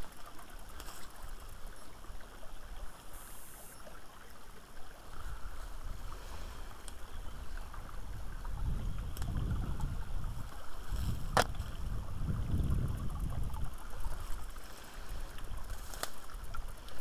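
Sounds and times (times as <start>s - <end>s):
wind rumble on microphone: 5.1s - 17.0s
branches brushing: 14.0s - 17.0s
footsteps in undergrowth: 15.6s - 16.4s
twig snaps: 15.8s - 16.2s.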